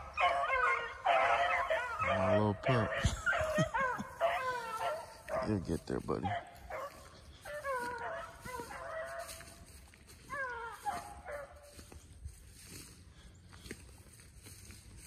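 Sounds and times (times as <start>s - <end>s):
dog howling: 0.0s - 5.5s, 6.3s - 11.8s.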